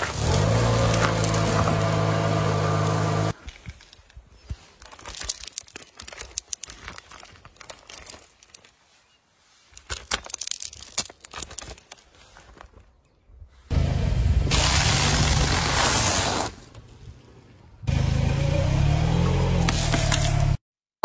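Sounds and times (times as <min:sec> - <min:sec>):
candy crunching under tyre: 0:04.7 - 0:08.8, 0:09.8 - 0:12.6
plastic packaging crinkling: 0:04.8 - 0:08.8.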